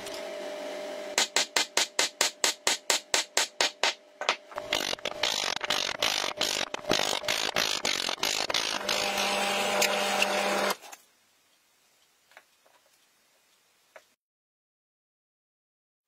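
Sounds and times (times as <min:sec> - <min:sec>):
drill press boring into wood: 0:04.8 - 0:10.8.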